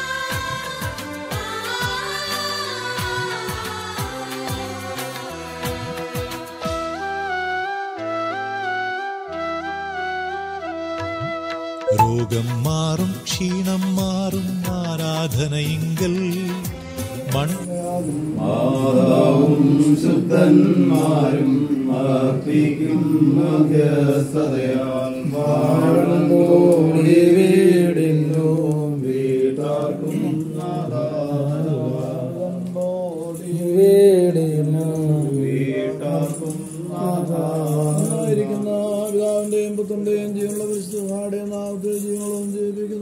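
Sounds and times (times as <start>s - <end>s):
voices chanting a prayer: 17.6s - 42.9s.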